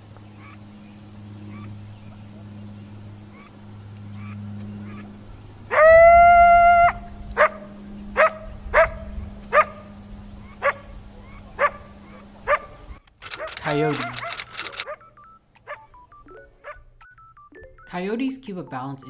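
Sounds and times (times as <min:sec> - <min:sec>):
coyote howl: 0:05.7 - 0:07.6
coyote yipping: 0:05.7 - 0:07.6, 0:08.2 - 0:09.8, 0:10.4 - 0:16.0, 0:16.6 - 0:17.2.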